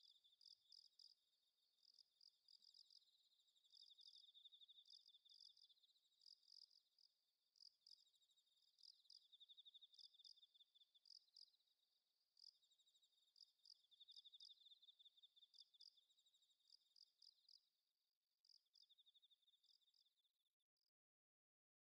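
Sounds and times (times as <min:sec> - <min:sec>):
crickets chirping: 0:00.0 - 0:11.6, 0:12.4 - 0:17.6, 0:18.4 - 0:20.1.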